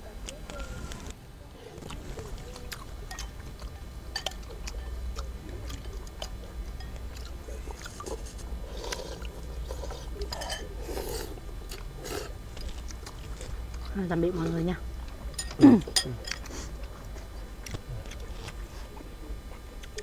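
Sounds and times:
chopsticks clicking on bowls: 0:03.1 - 0:07.3
slurping: 0:07.0 - 0:13.9.

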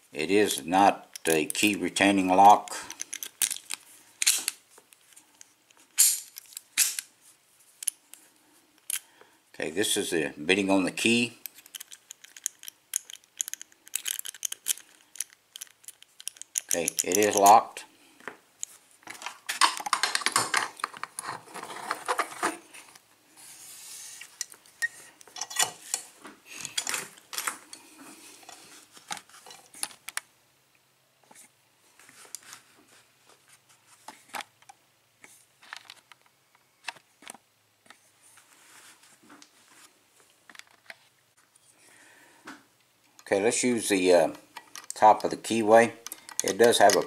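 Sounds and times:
lockpicking tools clicking on padlock: 0:02.9 - 0:04.5, 0:11.4 - 0:17.5, 0:46.0 - 0:47.0.

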